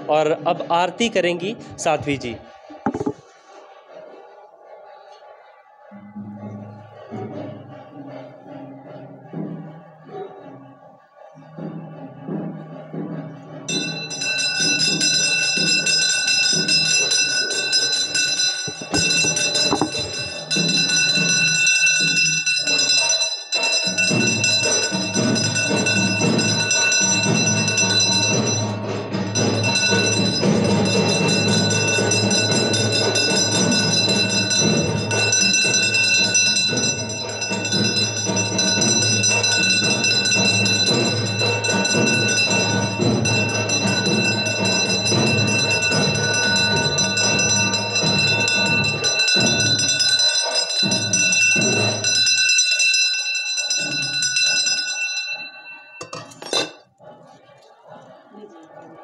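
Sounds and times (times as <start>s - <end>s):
drums beating: 0.3s - 3.4s, 11.5s - 59.0s
bells ringing: 13.7s - 57.1s.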